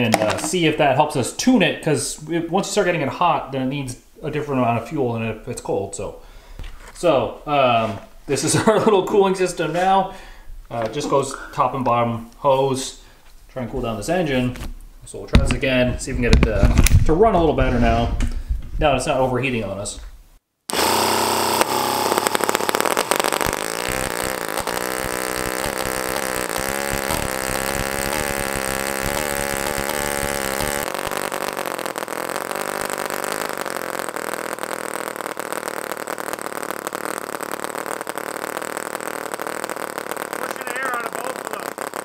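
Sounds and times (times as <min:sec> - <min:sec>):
small engine buzzing: 0:20.7 - 0:42.0.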